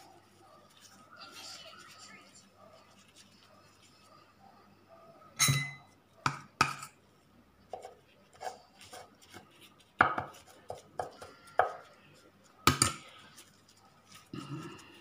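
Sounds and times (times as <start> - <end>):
spoon clinking on ceramic plate: 5.4 - 5.9.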